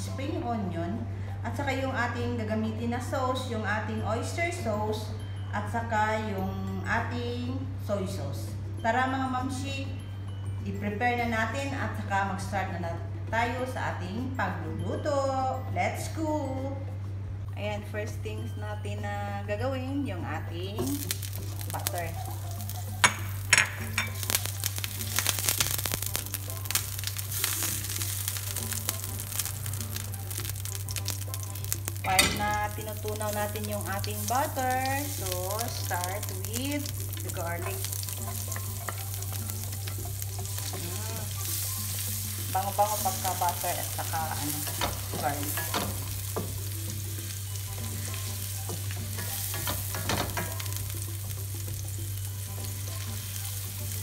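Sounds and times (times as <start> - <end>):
butter sizzling in frying pan: 20.8 - 54.0.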